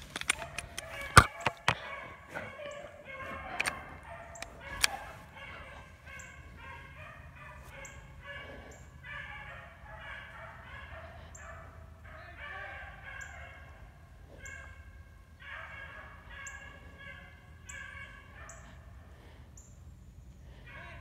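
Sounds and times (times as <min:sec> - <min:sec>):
hunting dogs baying: 0:00.0 - 0:21.0.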